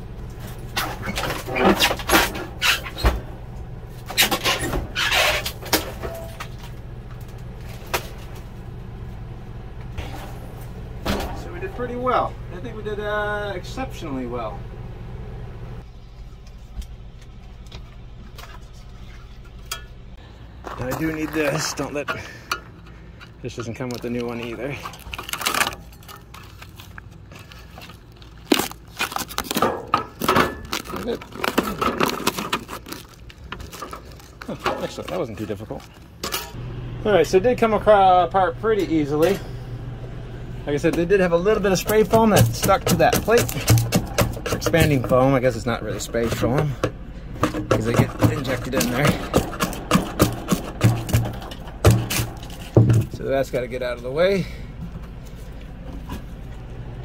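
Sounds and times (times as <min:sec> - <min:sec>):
metal unit scraping: 0:00.5 - 0:06.6, 0:40.8 - 0:54.4
foam crackling and tearing: 0:25.0 - 0:36.1
putty knife prying metal plate: 0:41.8 - 0:45.1, 0:47.4 - 0:53.0.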